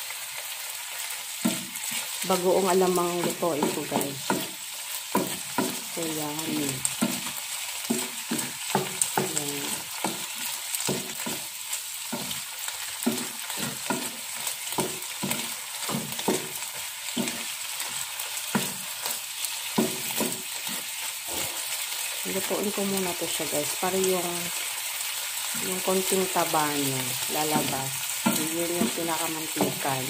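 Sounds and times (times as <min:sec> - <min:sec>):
meat sizzling in a frying pan: 0:00.0 - 0:30.0.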